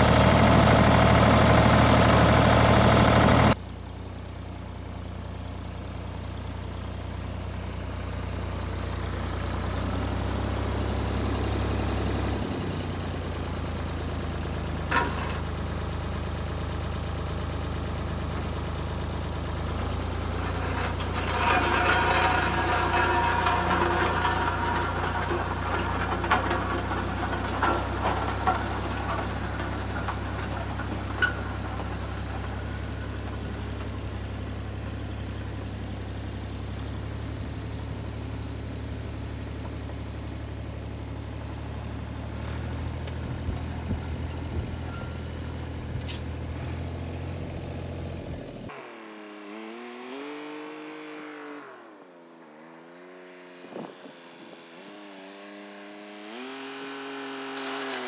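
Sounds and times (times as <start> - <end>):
tractor engine running: 0.0 - 48.7
drag and chains clattering: 12.5 - 13.4, 14.9 - 15.6, 19.7 - 34.4, 42.5 - 47.0.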